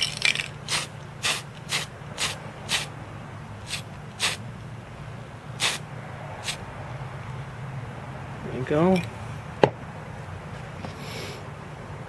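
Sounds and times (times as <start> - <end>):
paint spray hisses: 0.6 - 2.9, 3.7 - 4.4, 5.6 - 5.8.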